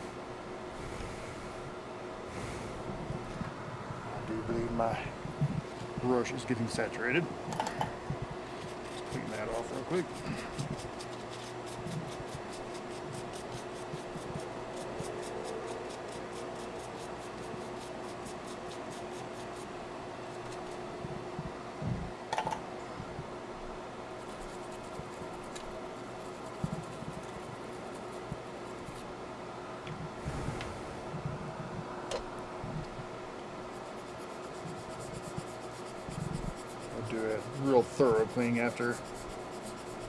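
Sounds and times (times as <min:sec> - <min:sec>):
bench fan humming: 0:00.0 - 0:40.0
brush scratching: 0:08.6 - 0:20.9, 0:24.2 - 0:29.1, 0:33.7 - 0:40.0.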